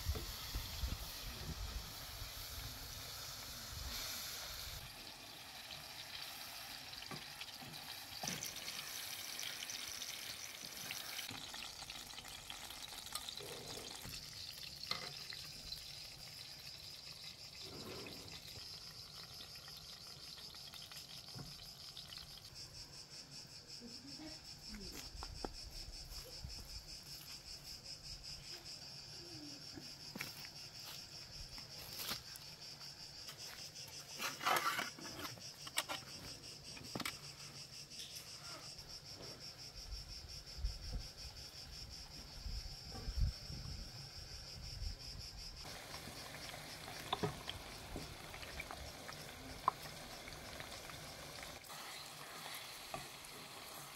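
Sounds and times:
meat sizzling in a pan: 0.0s - 22.5s, 45.6s - 53.9s
high insect chirring: 0.1s - 53.9s.

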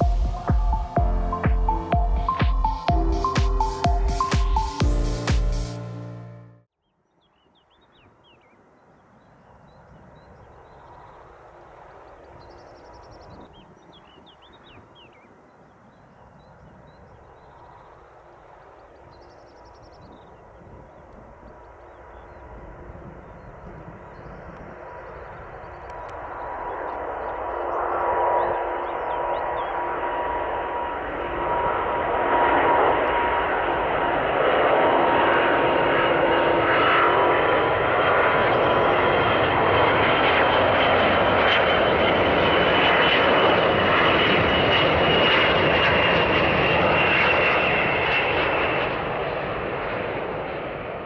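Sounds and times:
jet engine roar at takeoff: 0.0s - 1.0s, 17.2s - 51.0s
jet engine whine: 0.0s - 6.6s, 17.2s - 51.0s
small birds chirping: 12.1s - 18.0s.

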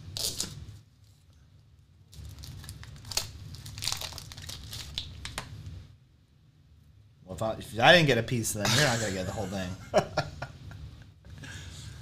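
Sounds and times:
wrapper crinkling and tearing: 0.1s - 1.2s, 2.1s - 5.5s.

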